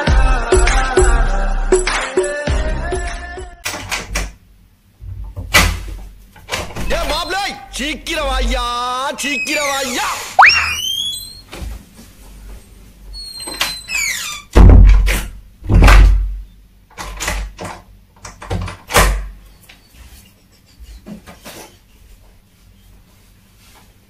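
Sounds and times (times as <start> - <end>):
heavy thuds and knocks: 14.6 - 16.4.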